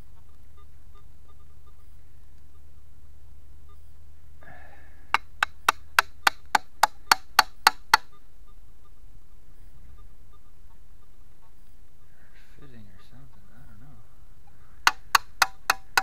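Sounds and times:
sharp evenly spaced taps: 0:05.1 - 0:08.1, 0:14.9 - 0:16.0.

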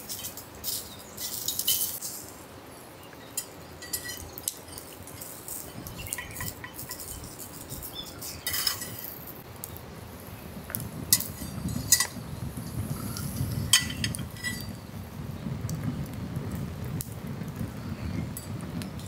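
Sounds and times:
metal pan clinking on grill: 0:03.4 - 0:07.7, 0:08.3 - 0:09.2, 0:11.1 - 0:12.2, 0:13.7 - 0:14.8.

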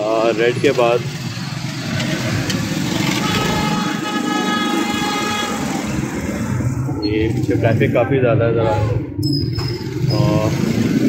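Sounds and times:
motorcycle and car engines: 0:00.0 - 0:11.0
vehicle horn blast: 0:03.0 - 0:05.8.

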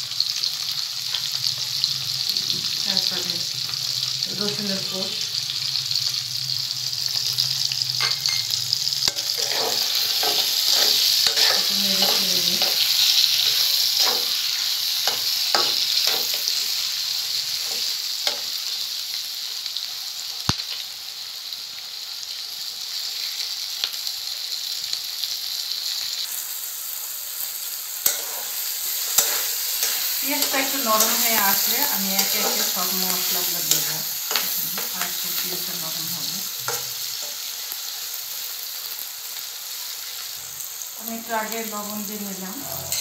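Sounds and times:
onions sizzling in hot oil: 0:00.0 - 0:43.0
metal spatula scraping: 0:08.0 - 0:16.9, 0:28.0 - 0:35.7, 0:42.6 - 0:43.0.

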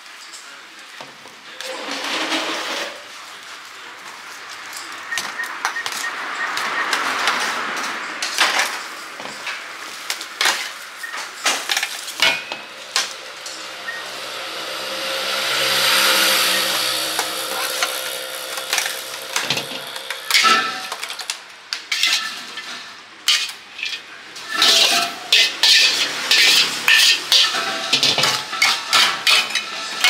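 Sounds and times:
food sizzling in a wok: 0:11.6 - 0:21.5.

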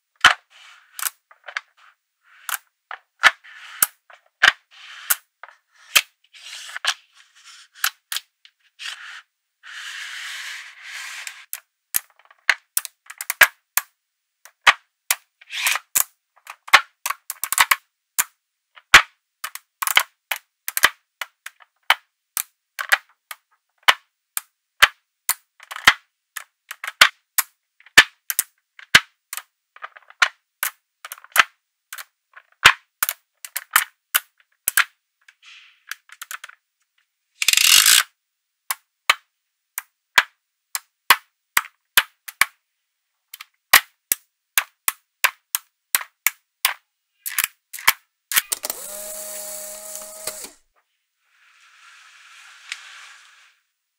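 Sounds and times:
magnetic balls snapping together: 0:02.4 - 0:05.2, 0:18.9 - 0:35.0, 0:39.8 - 0:42.6, 0:43.3 - 0:49.0.

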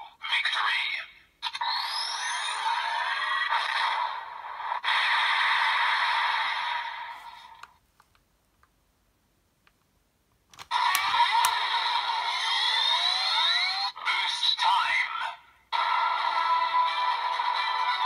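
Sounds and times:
toy electronic sound effects: 0:01.5 - 0:03.7, 0:10.7 - 0:15.0.

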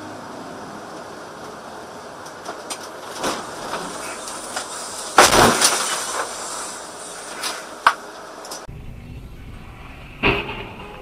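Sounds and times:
car crash impact: 0:03.0 - 0:06.5, 0:10.2 - 0:11.0
ice chunks hitting windshield: 0:05.1 - 0:06.3.

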